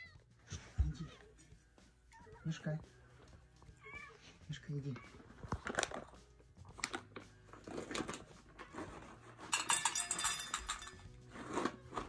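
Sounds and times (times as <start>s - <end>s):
cat food bowl clinking: 9.5s - 11.2s.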